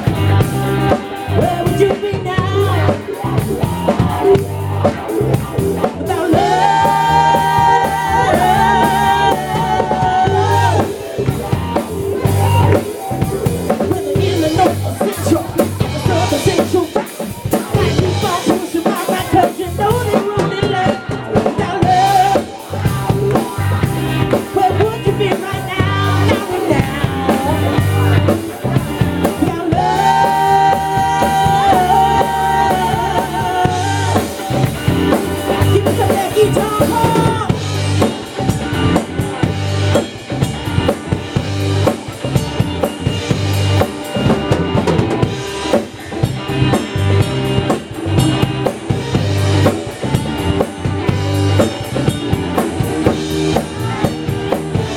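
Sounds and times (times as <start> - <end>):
drum kit beat: 0.0 - 54.9
electric bass: 0.0 - 54.9
electric guitar: 0.0 - 54.9
woman singing into a microphone: 1.4 - 3.0, 6.0 - 11.0, 13.8 - 22.9, 24.5 - 27.9, 29.3 - 34.6, 35.6 - 37.6.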